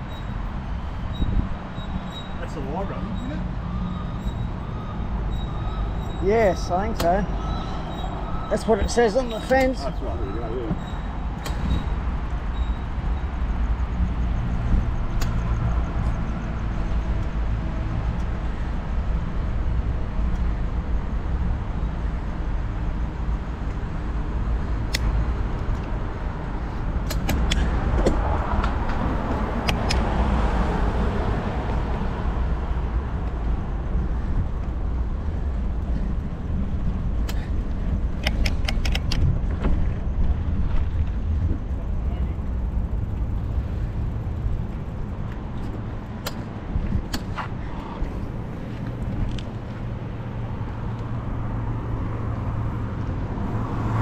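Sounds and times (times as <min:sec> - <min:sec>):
sharp clicks: 0:27.0 - 0:28.2, 0:29.6 - 0:30.1, 0:38.1 - 0:39.3, 0:46.2 - 0:47.5.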